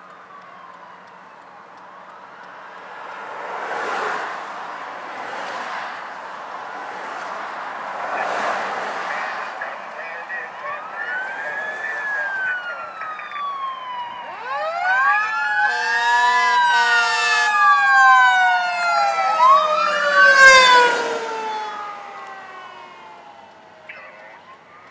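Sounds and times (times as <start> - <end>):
fire truck sirens wailing: 0.0 - 24.9
horn blasts: 15.6 - 17.6.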